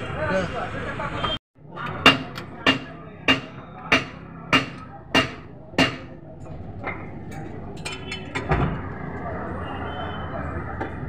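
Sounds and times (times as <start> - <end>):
sharp knocks: 1.9 - 6.2.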